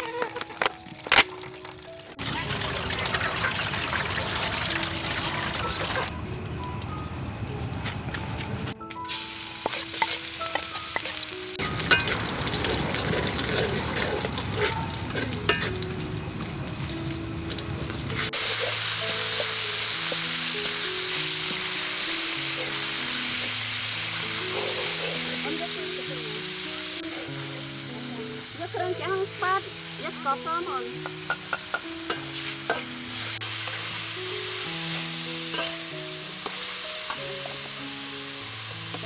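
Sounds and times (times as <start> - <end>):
meat sizzling: 0.0 - 6.7, 8.8 - 39.0
garlic crackling in oil: 0.0 - 6.9, 9.0 - 27.8
metal spatula stirring in wok: 9.6 - 16.0, 31.0 - 34.0, 34.9 - 37.7.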